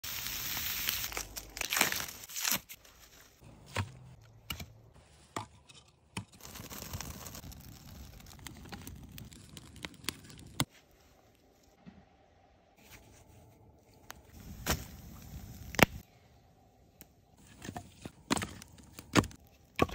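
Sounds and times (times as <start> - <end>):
wood fire crackling and popping: 6.3 - 10.7, 14.3 - 16.0.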